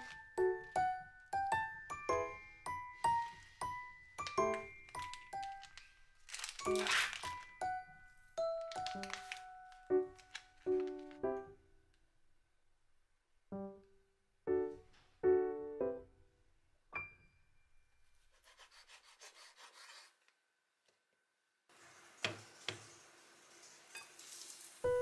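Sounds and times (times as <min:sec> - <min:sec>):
keyboard background music: 0:00.0 - 0:05.8, 0:06.5 - 0:11.6, 0:13.6 - 0:16.2.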